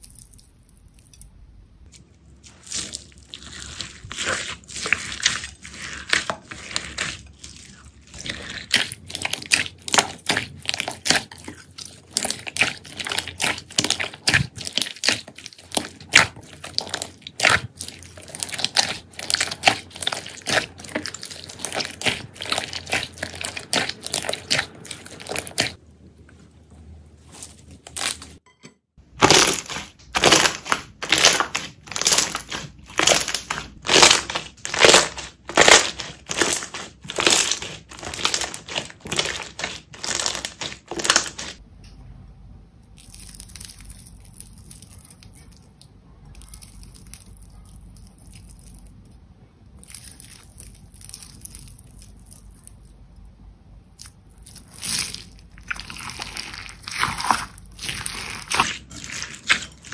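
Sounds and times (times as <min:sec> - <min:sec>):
slime crackling pops: 0:29.2 - 0:41.6.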